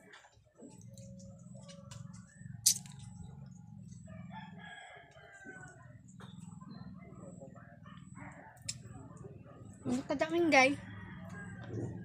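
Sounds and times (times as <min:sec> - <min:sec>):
steady low hum: 0:00.3 - 0:12.0
rooster crowing: 0:04.1 - 0:05.8, 0:10.7 - 0:12.0.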